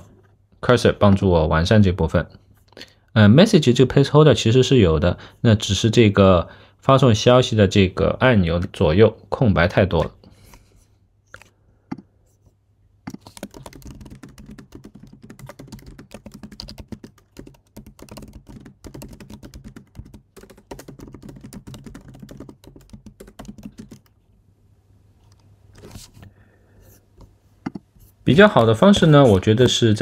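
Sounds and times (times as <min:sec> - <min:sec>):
typing on computer keyboard: 0:13.1 - 0:24.2.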